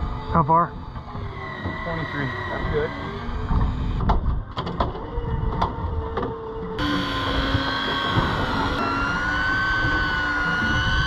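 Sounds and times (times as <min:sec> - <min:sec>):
electric fishing reel motor whining: 0:00.0 - 0:11.0
wind on microphone: 0:02.5 - 0:11.0.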